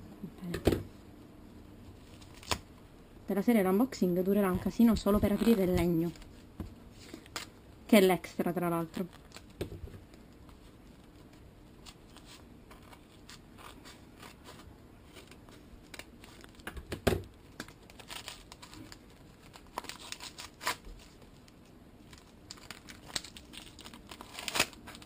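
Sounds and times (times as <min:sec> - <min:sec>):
paper tearing and crumpling: 0:17.8 - 0:21.1, 0:22.1 - 0:25.0.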